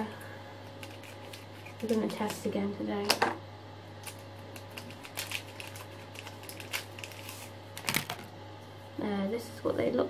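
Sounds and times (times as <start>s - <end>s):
steady low hum: 0.0s - 10.0s
plastic wrapper crinkling: 0.7s - 2.5s, 4.0s - 8.3s.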